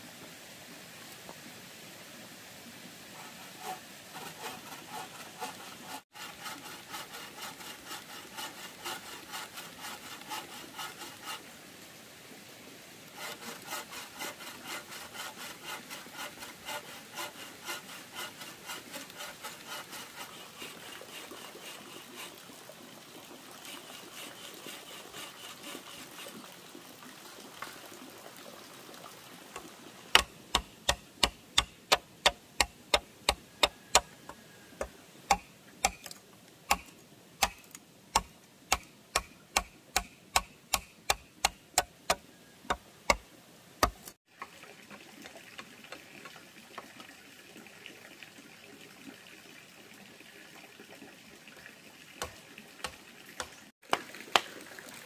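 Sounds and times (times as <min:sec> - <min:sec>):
hand saw cutting wood: 0:03.1 - 0:11.5, 0:13.1 - 0:22.4, 0:23.6 - 0:26.4, 0:30.1 - 0:44.2, 0:52.2 - 0:53.6.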